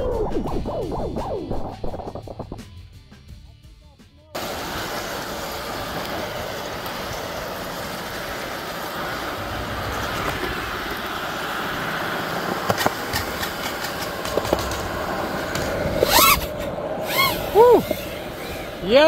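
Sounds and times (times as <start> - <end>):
quadcopter motors whirring: 4.4 - 19.0.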